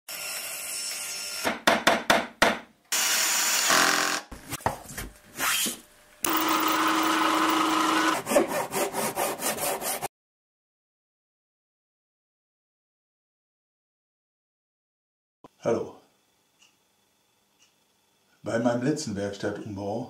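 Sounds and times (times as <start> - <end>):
power tool running: 2.9 - 4.4, 6.2 - 9.5
hand tool strokes on wood: 7.2 - 10.1.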